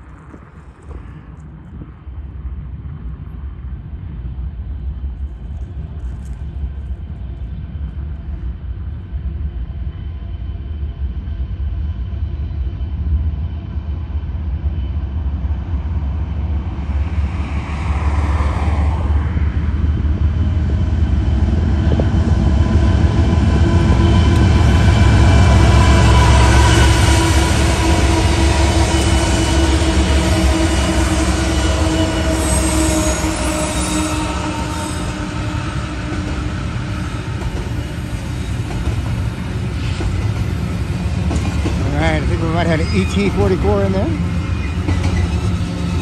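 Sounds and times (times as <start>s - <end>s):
diesel locomotive engine rumble: 0.0s - 46.0s
steady engine tones: 39.4s - 46.0s.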